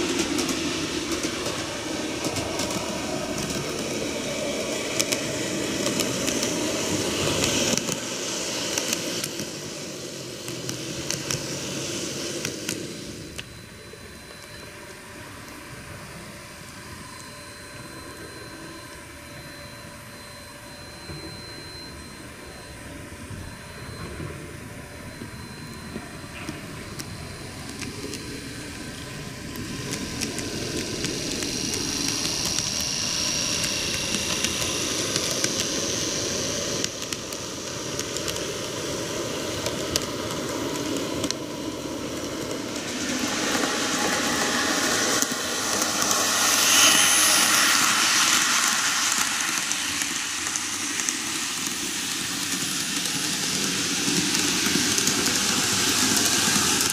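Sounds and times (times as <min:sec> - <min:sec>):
model train motors whining: 0:00.0 - 0:56.9.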